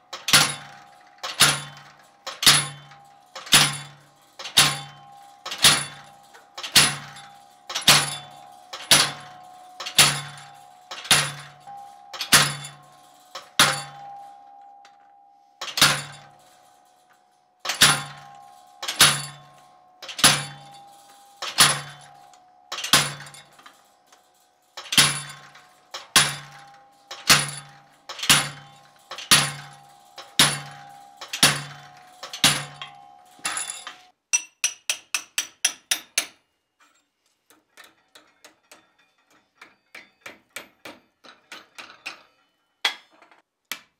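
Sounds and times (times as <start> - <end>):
anvil ringing: 0.2 - 24.2, 24.8 - 36.4
hammer striking steel on anvil: 24.9 - 36.4, 37.8 - 43.1.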